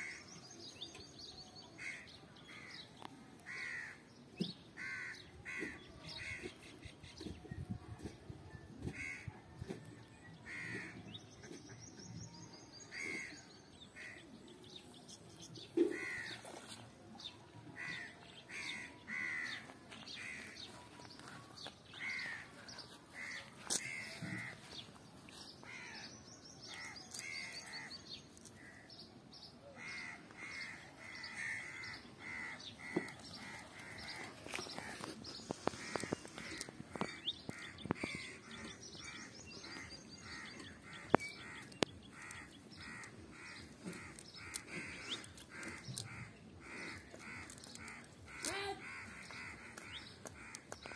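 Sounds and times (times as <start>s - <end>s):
crows cawing: 3.5s - 4.0s, 4.8s - 6.5s, 8.9s - 9.3s, 10.4s - 11.0s, 12.9s - 13.4s, 15.9s - 16.4s, 17.8s - 20.6s, 22.0s - 24.8s, 25.6s - 26.1s, 29.8s - 50.9s.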